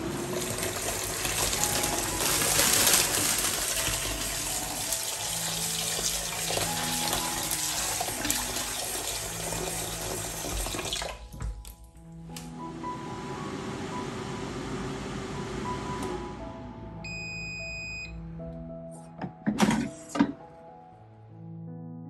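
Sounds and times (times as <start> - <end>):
tap water running into colander: 0.0 - 11.7.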